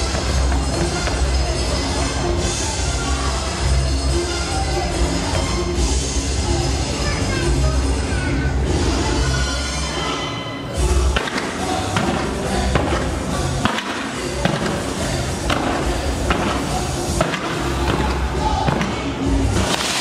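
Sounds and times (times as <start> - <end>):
music playing: 0.0 - 20.0
fireworks bangs: 11.2 - 20.0.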